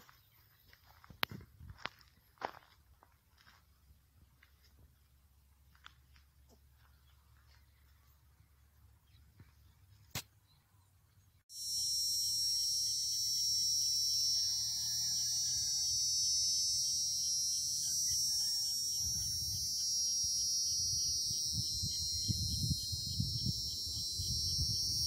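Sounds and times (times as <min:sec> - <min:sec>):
high-pitched insect buzzing: 0:11.5 - 0:25.0
wind rumbling on microphone: 0:18.9 - 0:25.0.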